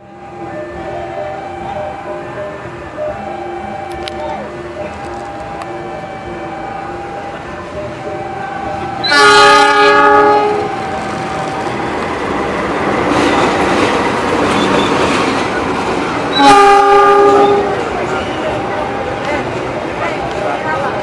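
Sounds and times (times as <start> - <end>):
two-note crossing warning signal: 0.0 - 12.0
train engine and wheel noise: 0.0 - 21.0
locomotive horn: 0.2 - 11.8, 16.3 - 18.9.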